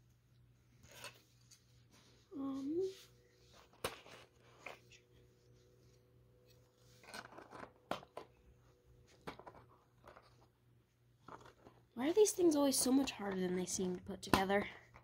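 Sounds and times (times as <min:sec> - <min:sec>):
plastic parts clicking and rustling: 0:07.0 - 0:08.4, 0:09.1 - 0:10.5, 0:11.2 - 0:11.8.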